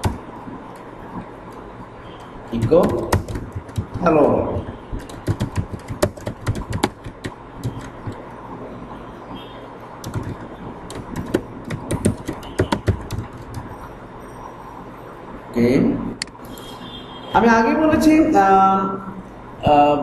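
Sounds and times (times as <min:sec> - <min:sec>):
faint steady hum: 0:00.0 - 0:20.0
keyboard key clicks: 0:05.0 - 0:08.2.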